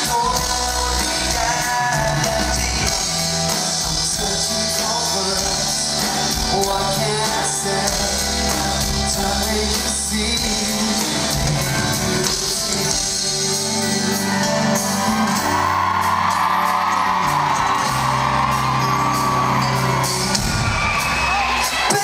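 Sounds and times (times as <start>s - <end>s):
live pop band through loudspeakers: 0.0s - 22.0s
fans screaming and whooping: 12.8s - 22.0s.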